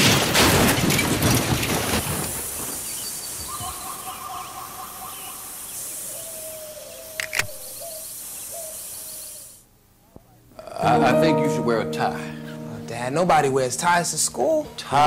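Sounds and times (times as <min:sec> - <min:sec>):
steady hiss: 0:01.9 - 0:10.2
birds calling: 0:02.0 - 0:09.6
sharp click: 0:07.2 - 0:07.6.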